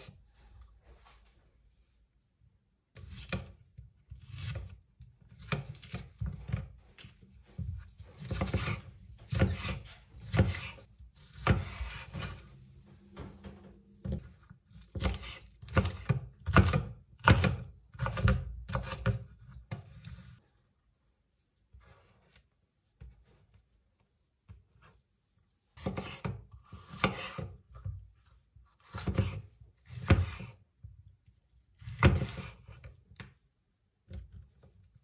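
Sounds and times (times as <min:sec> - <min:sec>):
knife cutting on wooden board: 0:03.0 - 0:12.5, 0:14.1 - 0:20.4, 0:25.8 - 0:27.8, 0:28.8 - 0:30.6.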